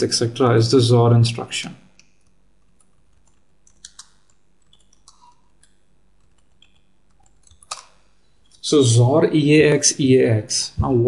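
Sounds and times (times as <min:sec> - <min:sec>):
typing on computer keyboard: 0:06.2 - 0:07.9.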